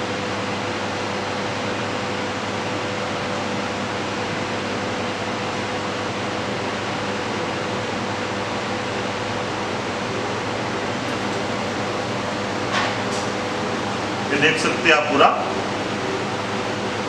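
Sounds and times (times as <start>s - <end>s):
ice cream machine running: 0.0s - 17.0s.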